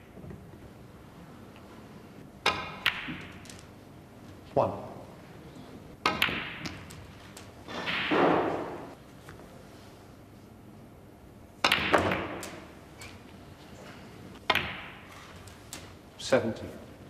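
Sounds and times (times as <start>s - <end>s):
cue striking ball: 2.4s - 3.5s, 6.0s - 7.0s, 7.6s - 9.0s, 11.6s - 12.7s, 14.4s - 15.1s
snooker balls clacking: 2.4s - 3.7s, 5.9s - 9.0s, 11.6s - 13.3s, 14.3s - 16.0s.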